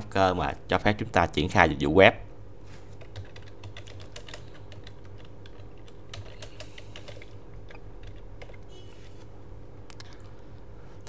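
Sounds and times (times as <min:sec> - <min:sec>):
faint steady hum: 0:00.0 - 0:11.0
keyboard typing: 0:03.0 - 0:09.0.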